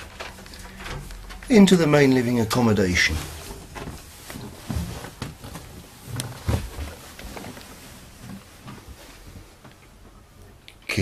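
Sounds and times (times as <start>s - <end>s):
footsteps on wooden floor: 3.2s - 9.9s.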